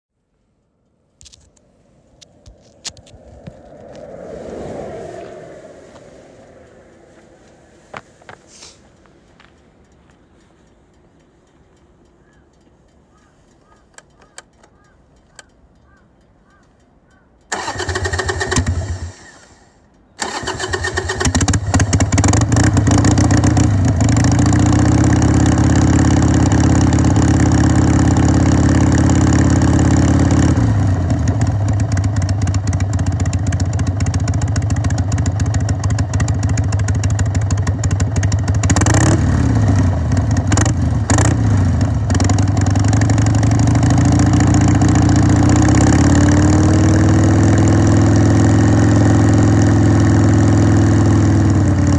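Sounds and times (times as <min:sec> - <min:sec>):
motorcycle throttle blips: 0:05.2 - 0:51.9
motorcycle engine starting and idling: 0:17.4 - 0:51.9.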